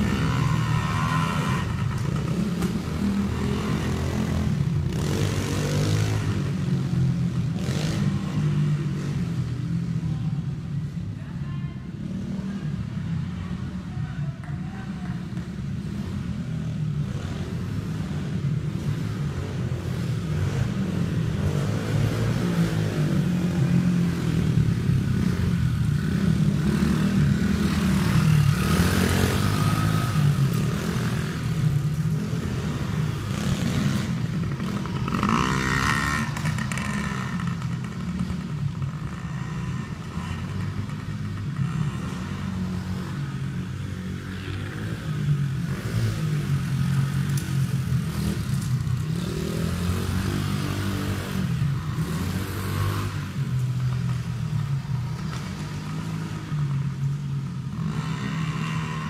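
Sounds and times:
dirt bike engine revving: 0:17.0 - 0:56.5.

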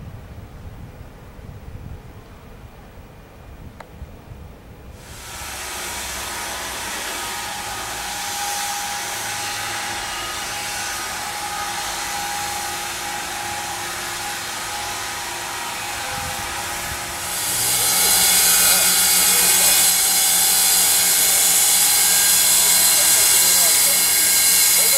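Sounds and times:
sawmill machinery whirring: 0:05.0 - 0:24.9.

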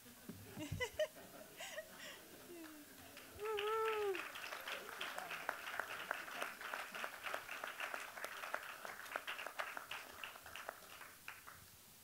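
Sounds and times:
audience applauding: 0:02.5 - 0:11.6.

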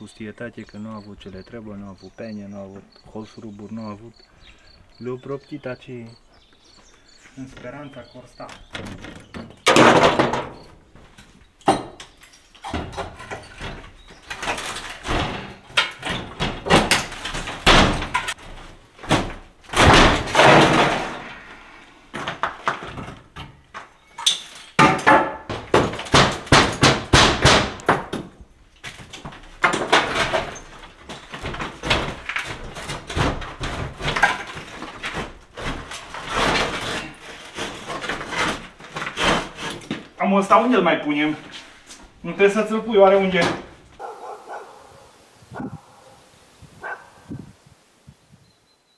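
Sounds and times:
wooden window frame knocking: 0:24.8 - 0:28.4.

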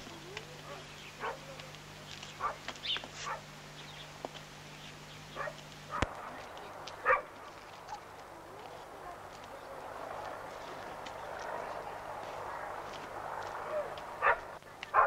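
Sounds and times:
low steady hum: 0:00.0 - 0:15.0
dog barking: 0:00.7 - 0:01.5, 0:02.4 - 0:03.5, 0:05.4 - 0:06.4, 0:07.0 - 0:08.1, 0:13.6 - 0:15.0.

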